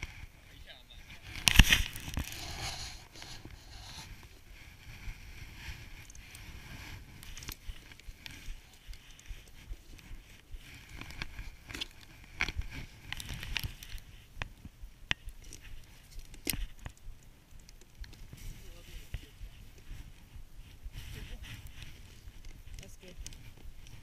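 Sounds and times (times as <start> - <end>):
snow crunching: 0.6 - 14.3.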